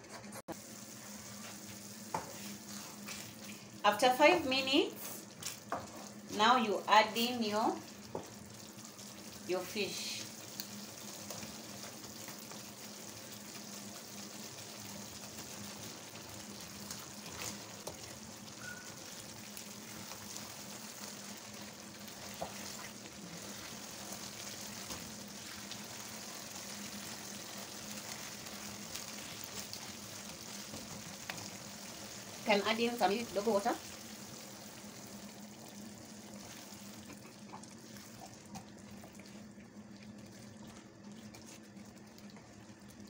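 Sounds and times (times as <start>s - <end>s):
sauce sizzling in a frying pan: 0.5s - 43.0s.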